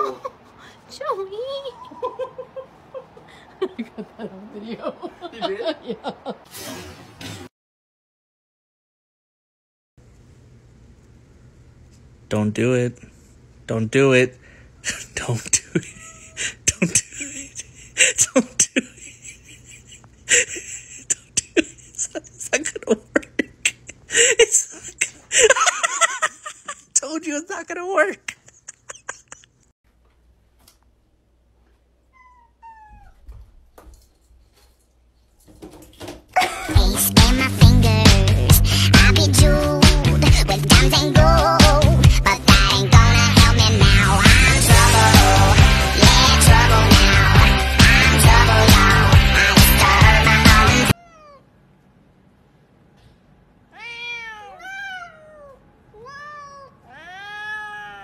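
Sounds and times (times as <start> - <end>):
cat meowing: 32.1 - 33.4, 51.0 - 51.5, 53.7 - 58.0
music: 36.7 - 50.9.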